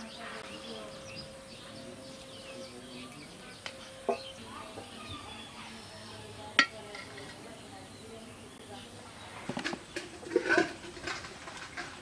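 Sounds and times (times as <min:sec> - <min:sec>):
birds chirping: 0:00.0 - 0:12.0
cooking utensils clinking: 0:06.5 - 0:07.4, 0:09.6 - 0:12.0.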